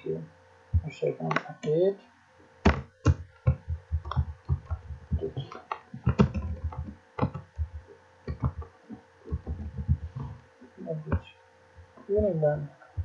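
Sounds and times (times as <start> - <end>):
keyboard typing: 2.7 - 8.7, 9.3 - 10.4.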